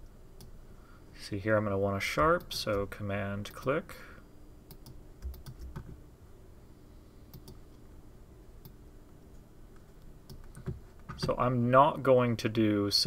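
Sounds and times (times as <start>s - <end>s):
computer keyboard and mouse clicks: 4.7s - 6.0s, 7.3s - 7.6s, 10.3s - 11.3s.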